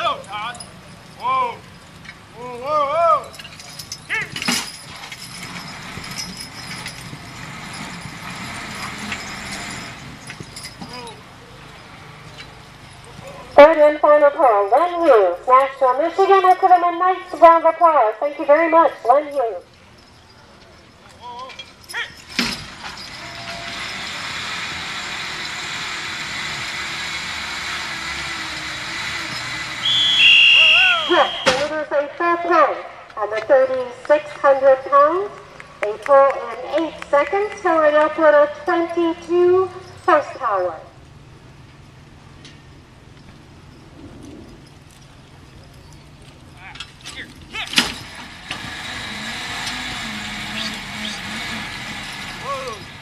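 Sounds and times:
truck running under load: 0:00.0 - 0:53.0
hydraulic pump hum: 0:21.6 - 0:31.8, 0:47.9 - 0:53.0
person shouting: 0:30.4 - 0:31.6, 0:52.4 - 0:52.8.

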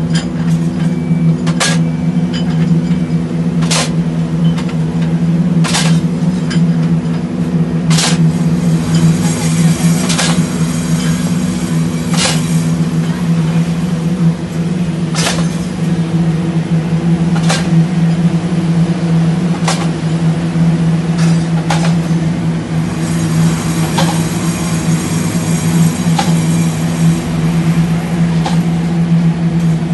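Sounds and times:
deep machine hum: 0:00.0 - 0:29.9
sharp machine knocks: 0:08.9 - 0:12.8, 0:22.8 - 0:27.1.

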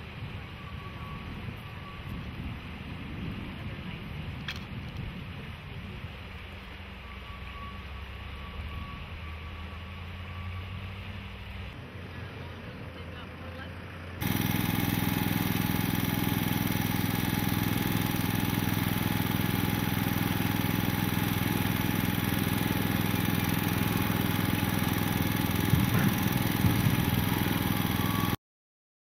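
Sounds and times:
portable generator running: 0:14.1 - 0:28.4.

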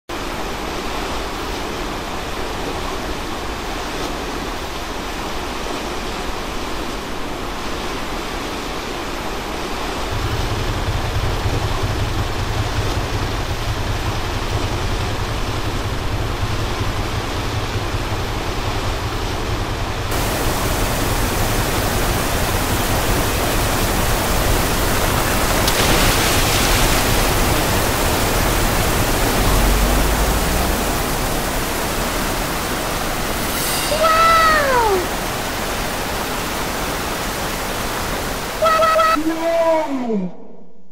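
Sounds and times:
waterfall rushing: 0:00.2 - 0:39.9
deep rumble: 0:10.1 - 0:34.0
bright hiss: 0:31.0 - 0:35.9.

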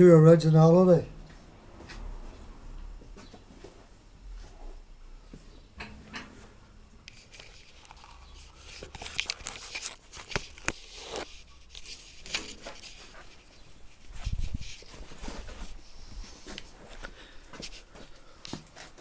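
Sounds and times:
camera handling noise: 0:07.1 - 0:12.8.

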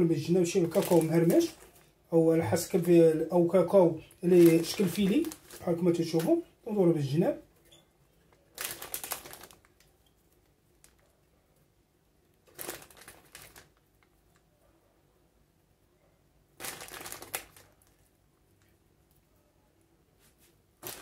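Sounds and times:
plastic bag crinkling: 0:00.1 - 0:06.5, 0:08.3 - 0:11.2, 0:12.4 - 0:14.2, 0:16.6 - 0:18.2, 0:20.8 - 0:21.0.

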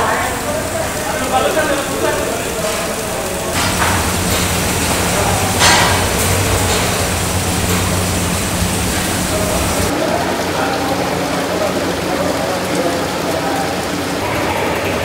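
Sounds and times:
kitchen low hum: 0:00.0 - 0:09.9
tap water running into metal pot: 0:00.0 - 0:10.0.

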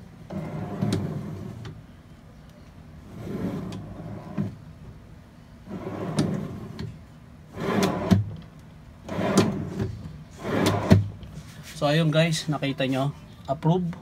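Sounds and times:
drawer sliding on metal guides: 0:00.3 - 0:01.7, 0:03.1 - 0:04.6, 0:05.7 - 0:08.3, 0:09.0 - 0:11.1.

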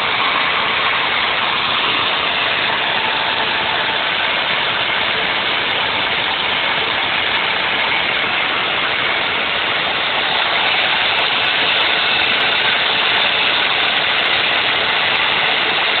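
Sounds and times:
router motor running: 0:00.0 - 0:16.0
shop vacuum running: 0:00.0 - 0:16.0.

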